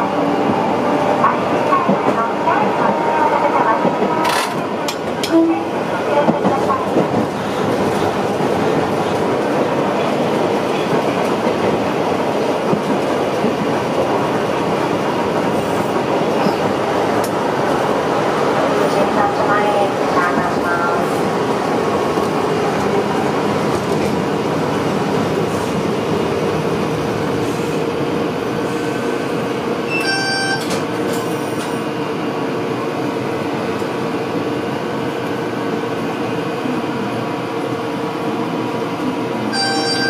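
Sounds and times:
tram wheels rumbling: 0.0s - 40.0s
brief ringing tone: 29.9s - 30.7s, 39.6s - 40.0s.

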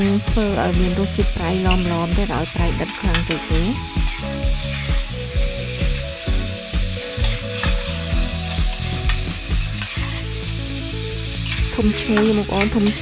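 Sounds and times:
pan sizzling: 0.0s - 13.0s
metal spatula scraping a pot: 2.8s - 5.0s, 7.0s - 10.4s, 11.3s - 13.0s.

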